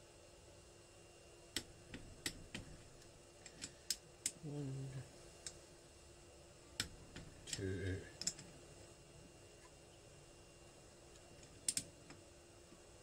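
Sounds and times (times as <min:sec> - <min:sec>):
man humming: 0:04.4 - 0:05.1, 0:07.5 - 0:08.2.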